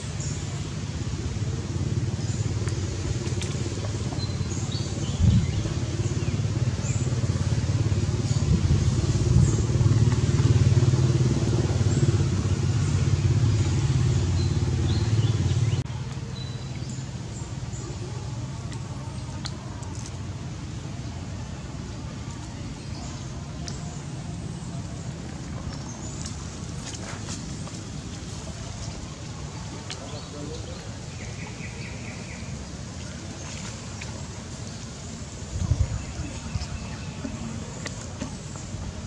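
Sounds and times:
low engine rumble: 0.0 - 39.0.

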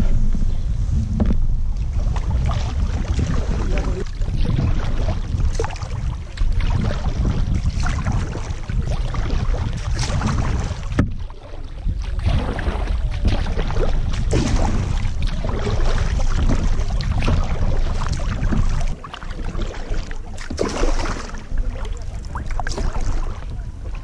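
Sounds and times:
kayak paddle strokes splashing: 0.0 - 24.0
water lapping at hull: 0.0 - 24.0
wind rumble on microphone: 0.0 - 24.0.

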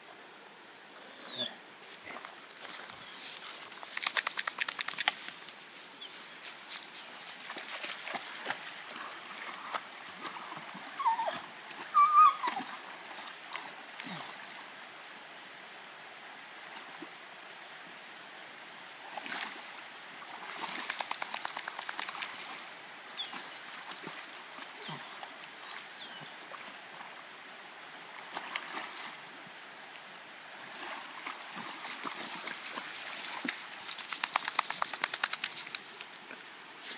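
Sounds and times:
creek rushing: 0.0 - 36.9
dog whining: 0.9 - 1.6, 10.8 - 12.7
dog splashing in water: 20.4 - 22.6, 30.8 - 36.0.

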